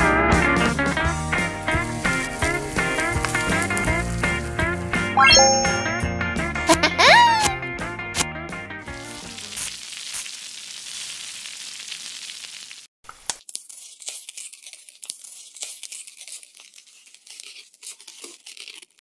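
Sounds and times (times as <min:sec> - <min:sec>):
high crackling and crinkling: 0:01.1 - 0:05.2, 0:08.8 - 0:19.0
batter sizzling on a hot plate: 0:01.3 - 0:05.0, 0:08.8 - 0:14.7.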